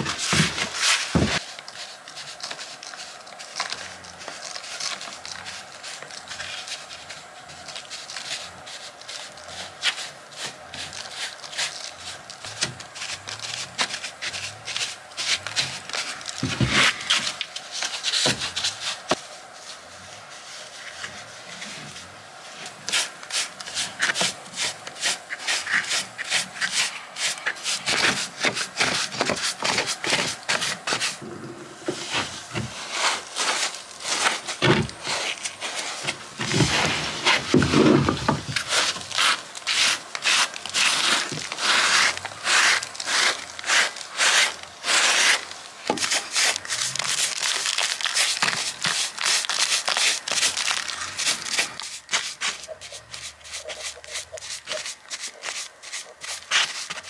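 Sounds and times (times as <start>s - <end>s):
hand tool scraping stone: 22.6s - 57.0s.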